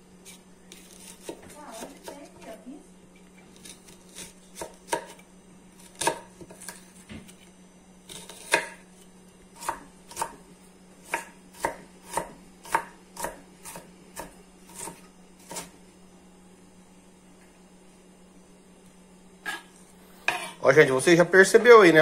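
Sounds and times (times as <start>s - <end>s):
knife chopping on wooden board: 0.7s - 2.3s, 3.6s - 5.2s, 5.8s - 7.4s, 8.1s - 8.9s, 9.6s - 10.4s, 11.0s - 15.7s, 20.3s - 20.6s.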